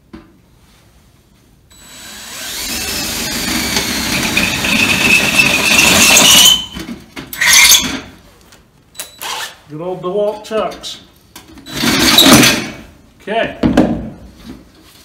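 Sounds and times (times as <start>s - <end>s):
drill boring into metal: 1.8s - 6.7s.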